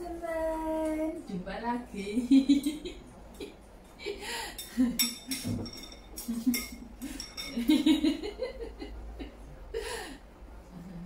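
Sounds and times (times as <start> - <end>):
utensils clinking on porcelain dishes: 4.6 - 8.1.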